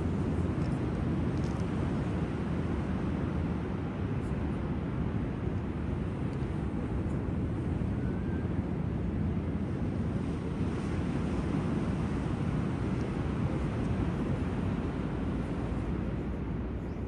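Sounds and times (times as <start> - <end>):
wind on microphone: 0.0 - 17.0
sea surf rumble: 5.6 - 16.8.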